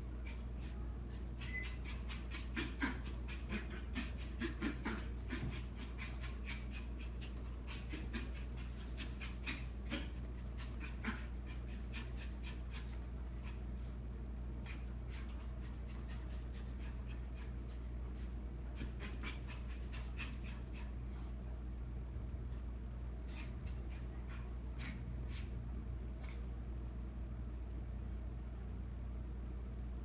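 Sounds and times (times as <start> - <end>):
puppy panting: 0.2 - 13.9, 14.6 - 21.2.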